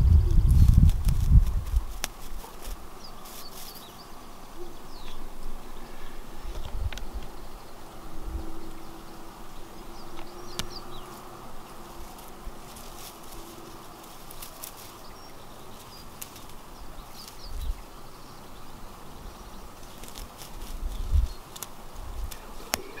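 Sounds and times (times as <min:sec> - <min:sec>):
insect buzzing: 0:00.0 - 0:23.0
faint bird chirps: 0:02.9 - 0:21.6, 0:22.2 - 0:23.0
rustling clicks: 0:19.8 - 0:23.0.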